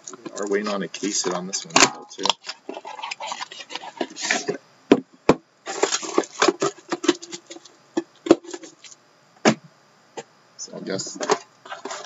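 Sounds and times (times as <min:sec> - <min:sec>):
cellophane crinkling: 0:00.0 - 0:04.6, 0:05.6 - 0:09.0, 0:11.2 - 0:12.0.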